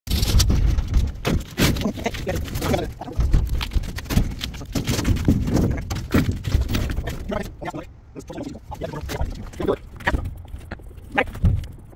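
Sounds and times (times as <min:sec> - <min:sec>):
sheet metal knocking and rattling: 0:00.1 - 0:07.5
man talking: 0:01.9 - 0:03.3, 0:07.0 - 0:10.3, 0:11.0 - 0:11.4.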